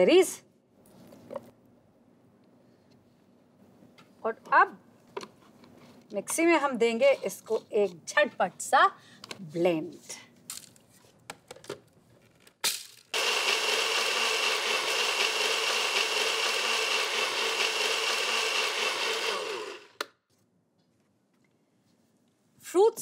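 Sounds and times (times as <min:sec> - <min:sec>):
blender running: 0:13.2 - 0:20.0.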